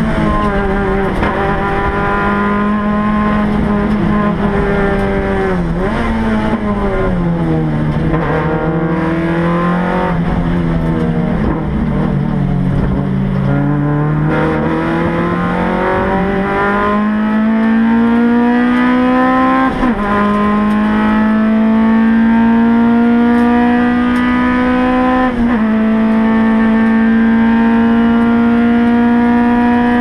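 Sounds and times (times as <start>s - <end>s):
race car engine at full throttle: 0.0s - 30.0s.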